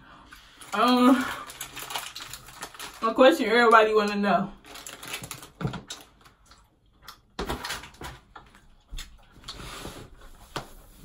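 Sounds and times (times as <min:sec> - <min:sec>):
snack wrapper crinkling: 0:00.6 - 0:03.2, 0:04.6 - 0:08.1.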